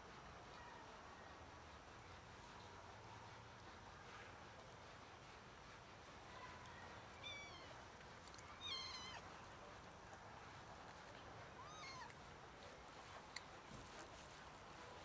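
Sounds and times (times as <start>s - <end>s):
cat meowing faintly: 7.1s - 7.8s, 8.4s - 9.3s, 11.6s - 12.2s.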